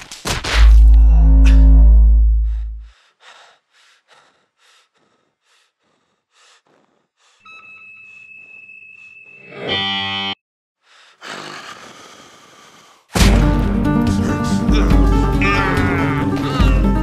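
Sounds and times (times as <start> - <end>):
low hum: 0.7 - 2.9
person panting: 2.4 - 7.4, 10.8 - 13.1, 14.0 - 15.3.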